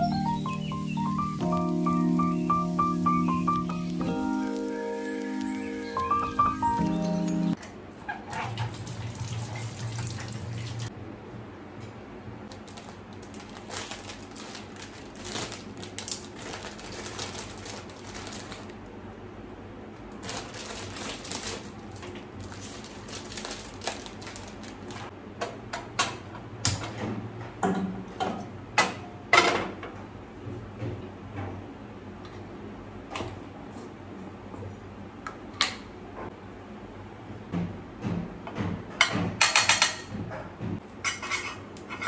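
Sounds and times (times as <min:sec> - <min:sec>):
tap water running into sink: 0:08.4 - 0:10.9.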